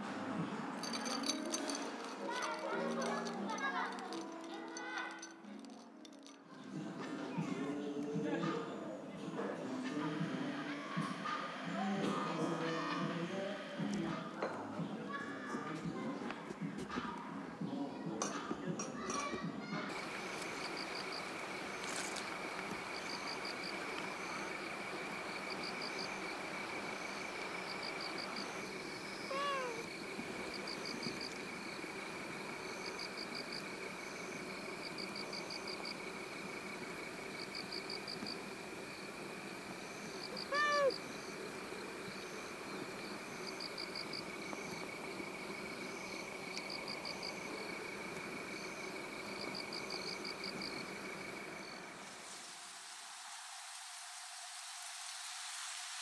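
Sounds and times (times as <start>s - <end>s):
insects chirping: 0.8s - 5.6s, 10.0s - 14.0s, 19.9s - 53.0s
short animal calls: 29.2s - 29.9s, 40.3s - 41.1s.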